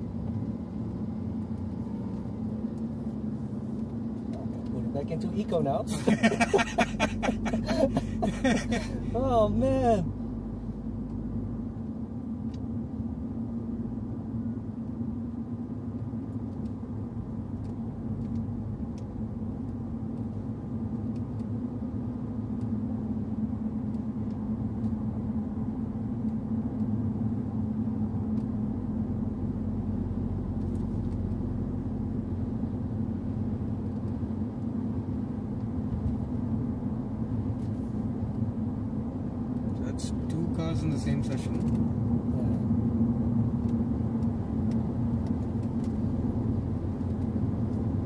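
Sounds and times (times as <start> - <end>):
car engine and tyre drone: 0.0 - 48.0.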